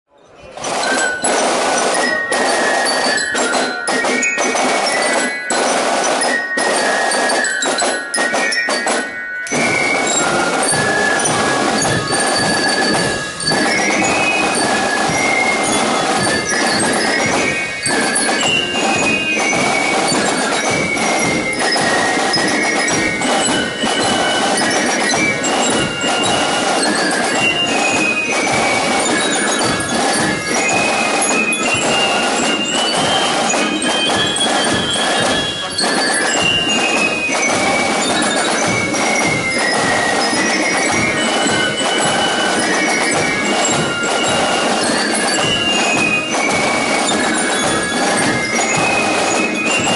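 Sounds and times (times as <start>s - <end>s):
flutes playing march melody: 0.5s - 49.9s
snare drums beating: 0.6s - 49.9s.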